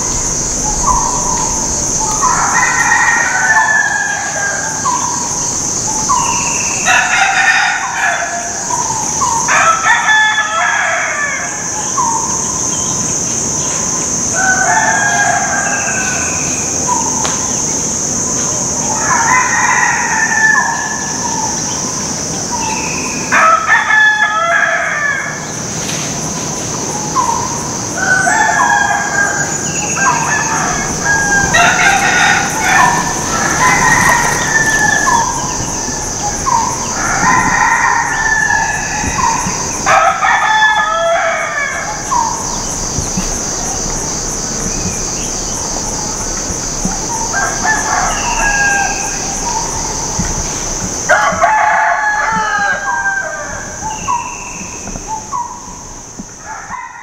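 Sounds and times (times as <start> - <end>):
steady high-pitched drone: 0.0 - 7.1
roosters crowing: 0.0 - 57.0.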